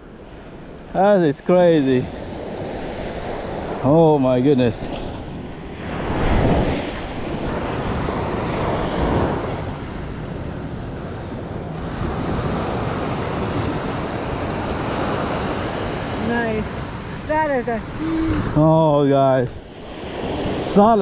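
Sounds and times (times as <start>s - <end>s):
surf washing up on sand: 0.2s - 21.0s
wind noise on microphone: 2.4s - 18.7s.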